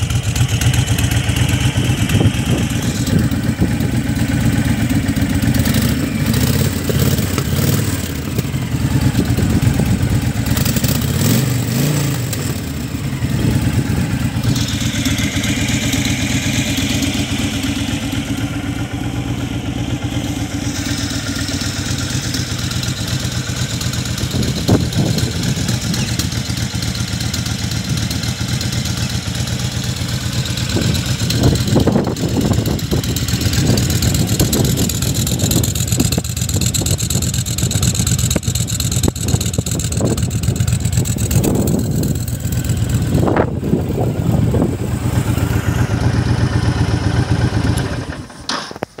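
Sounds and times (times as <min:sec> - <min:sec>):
motorcycle engine idling: 0:00.0 - 0:49.0.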